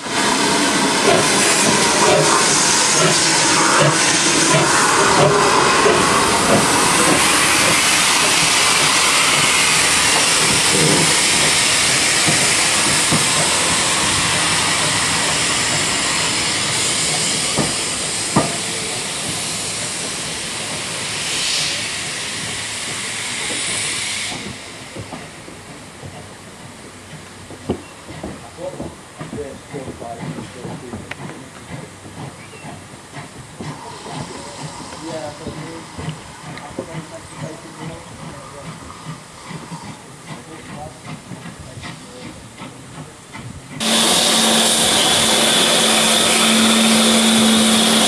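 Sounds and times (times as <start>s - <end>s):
loud hiss of steam: 0.0s - 48.0s
clanks of wheels and couplings: 24.3s - 43.8s.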